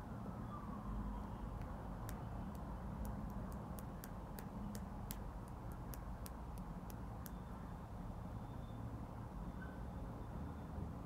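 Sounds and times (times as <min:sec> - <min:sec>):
low room hum: 0:00.0 - 0:11.0
light irregular clicking: 0:01.6 - 0:07.4.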